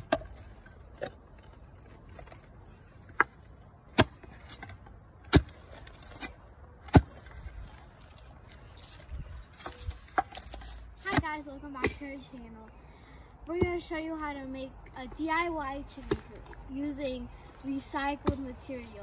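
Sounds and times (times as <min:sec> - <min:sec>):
auger scraping soil: 0:00.0 - 0:12.1.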